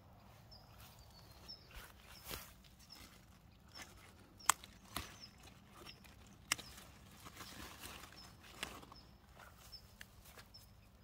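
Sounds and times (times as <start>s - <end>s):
leaves rustling: 0.3s - 11.0s
flower stems snapping: 3.8s - 9.0s.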